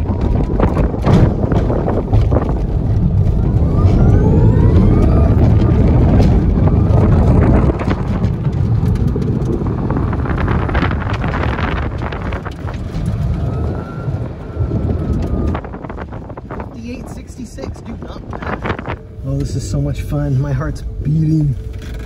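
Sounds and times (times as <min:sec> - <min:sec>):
wind and road noise: 0:00.0 - 0:22.0
electric motor whining: 0:02.3 - 0:08.4.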